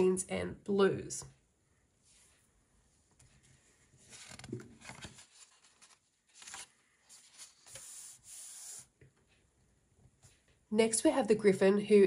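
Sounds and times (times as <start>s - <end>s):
paper page turning: 4.0s - 8.9s
palms sliding on paper: 6.4s - 9.0s.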